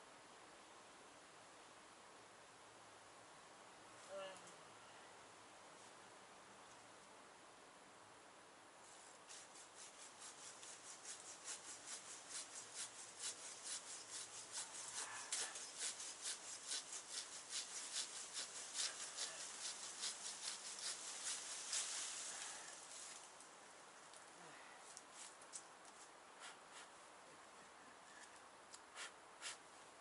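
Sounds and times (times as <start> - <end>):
handsaw cutting branch: 9.2 - 23.2, 28.8 - 29.6.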